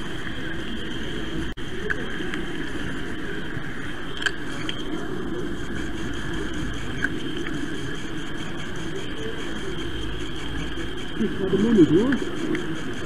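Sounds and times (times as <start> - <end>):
model train rumbling with whine: 4.2 - 13.0.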